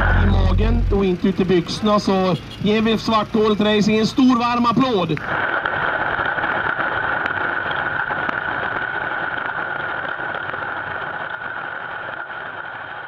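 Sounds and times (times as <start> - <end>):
pulsejet engine roaring: 0.0 - 2.5.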